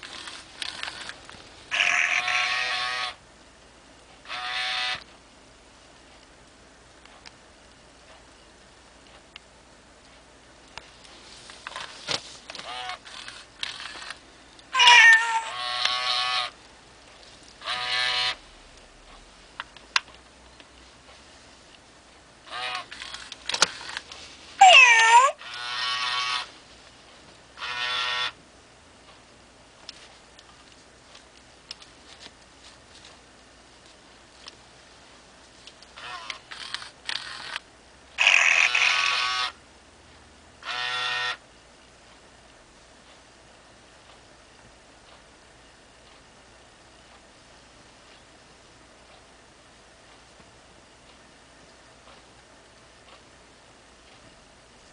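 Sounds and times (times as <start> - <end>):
toy cat electronic meows: 1.7 - 3.2, 4.2 - 5.0, 14.7 - 16.6, 17.6 - 18.4, 24.6 - 26.5, 27.6 - 28.4, 36.0 - 36.4, 38.2 - 39.6, 40.6 - 41.4.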